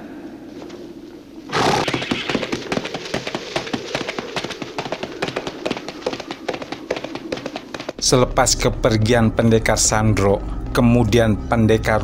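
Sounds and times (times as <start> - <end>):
horse whinnying: 1.5 - 2.6
galloping hooves: 1.5 - 8.0.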